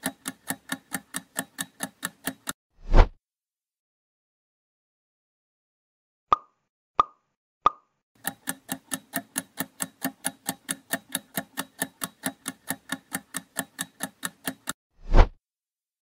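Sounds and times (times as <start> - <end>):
rapid clock ticking: 0.0 - 2.6, 8.2 - 14.8.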